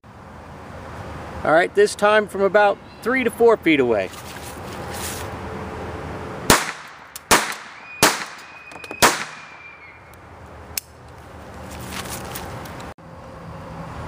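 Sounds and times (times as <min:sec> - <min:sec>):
pistol shots: 0:06.5 - 0:09.8.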